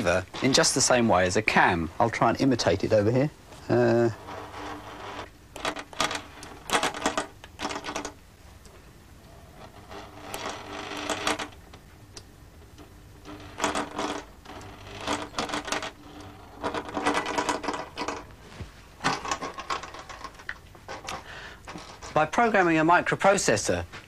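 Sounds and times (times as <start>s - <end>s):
sewing machine stitching: 13.5s - 18.2s.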